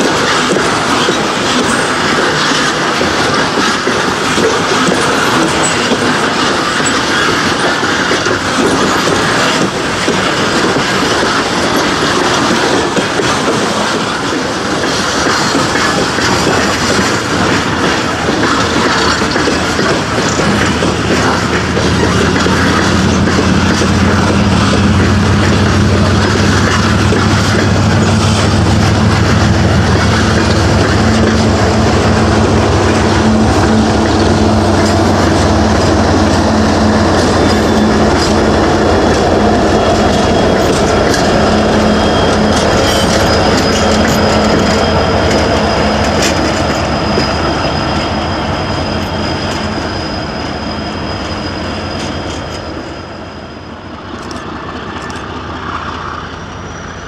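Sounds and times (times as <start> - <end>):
clicking over rail joints: 0.0 - 48.3
train wheel and rail rumble: 0.0 - 57.0
thin wheel squeal: 33.2 - 55.2.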